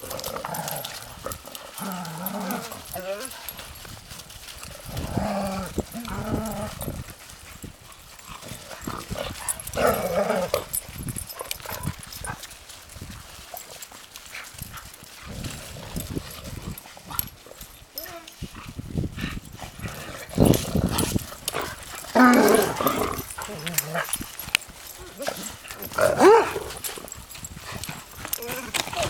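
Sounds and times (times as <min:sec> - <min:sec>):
paws on frozen snow: 0:00.0 - 0:29.0
dogs barking playfully: 0:25.1 - 0:26.8.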